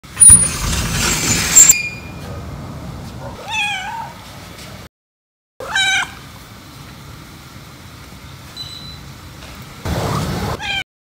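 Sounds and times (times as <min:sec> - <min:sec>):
cat meowing: 0:03.4 - 0:04.2, 0:05.6 - 0:06.2, 0:10.6 - 0:10.8.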